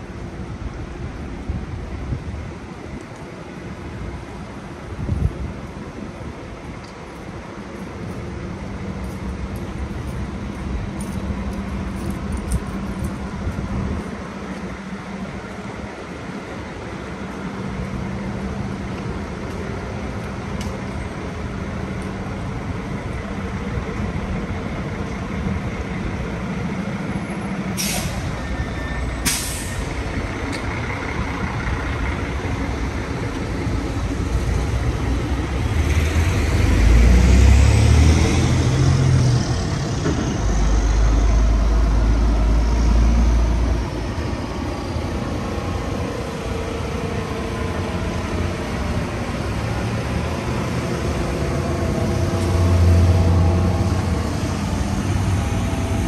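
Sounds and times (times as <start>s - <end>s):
city street traffic: 0.0s - 56.0s
air brake hisses: 27.8s - 28.4s, 29.1s - 30.0s
heavy vehicle passing: 29.6s - 56.0s.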